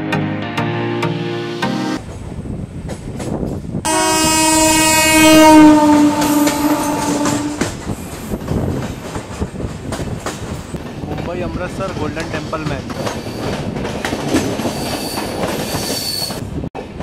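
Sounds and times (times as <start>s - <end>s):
locomotive horn long blast: 3.9s - 7.7s
train wheels clattering over rail joints: 6.4s - 16.6s.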